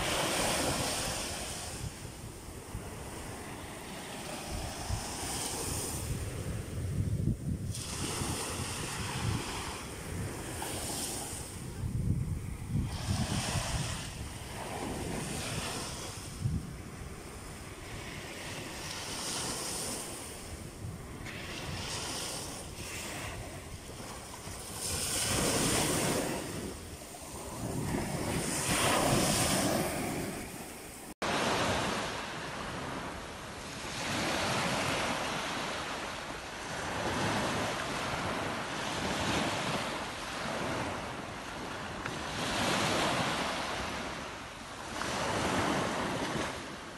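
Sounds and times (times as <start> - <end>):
small waves breaking on beach: 0.0 - 46.9
wind on microphone: 0.0 - 46.9.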